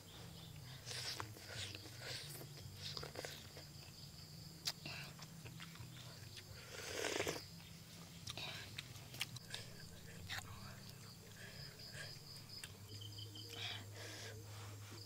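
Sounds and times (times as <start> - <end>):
slurping and chewing soup: 0.4 - 4.0, 4.6 - 12.8.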